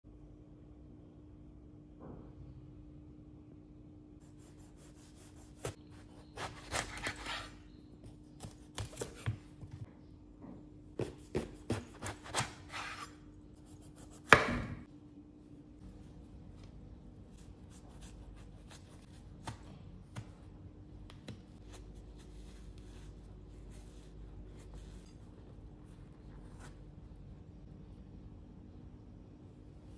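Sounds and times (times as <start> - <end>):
knife slicing eggplant: 4.3 - 9.8, 11.0 - 14.9.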